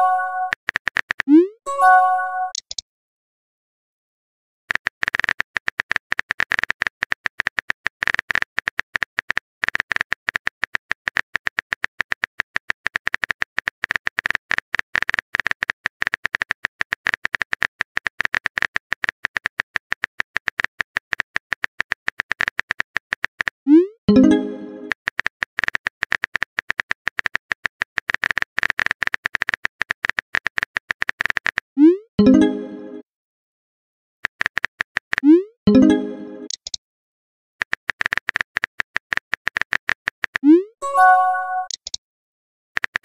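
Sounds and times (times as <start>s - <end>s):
message sent chime: 0.0s - 0.5s, 1.7s - 2.6s, 24.1s - 24.9s, 35.7s - 36.5s, 40.8s - 41.8s
keyboard typing clicks: 2.4s - 2.8s, 34.3s - 36.8s, 37.6s - 42.0s.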